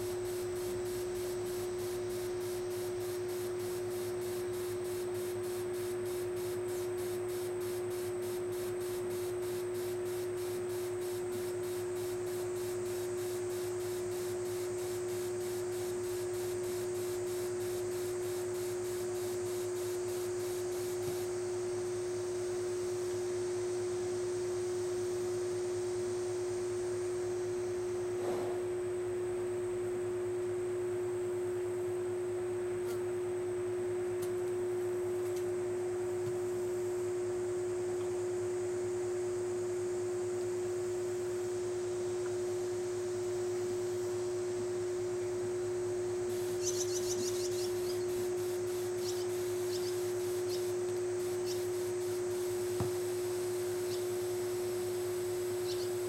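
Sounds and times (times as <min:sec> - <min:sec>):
steady hum: 0:00.0 - 0:56.0
hose nozzle spraying hiss: 0:46.3 - 0:53.3.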